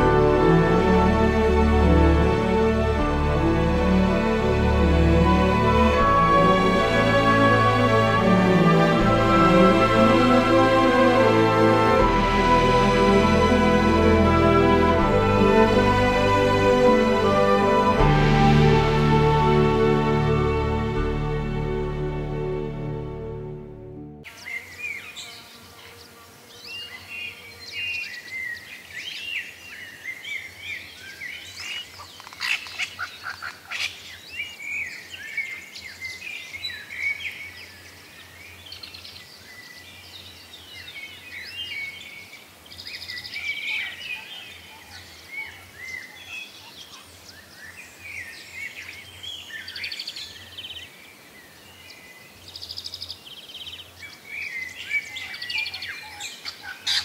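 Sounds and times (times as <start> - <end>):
birds chirping and singing: 24.3 - 57.0.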